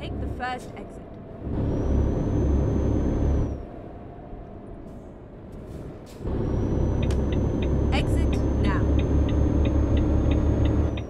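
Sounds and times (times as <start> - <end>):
engine and road rumble: 0.0 - 11.0
faint high whine: 1.4 - 3.9.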